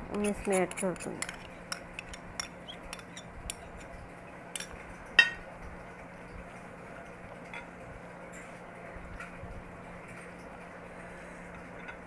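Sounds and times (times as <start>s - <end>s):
spoon scraping a serving dish: 0.1s - 4.0s.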